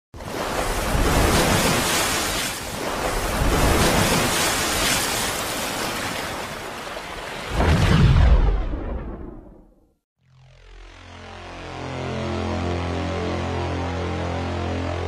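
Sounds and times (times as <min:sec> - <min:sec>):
rushing water: 0:00.2 - 0:08.8.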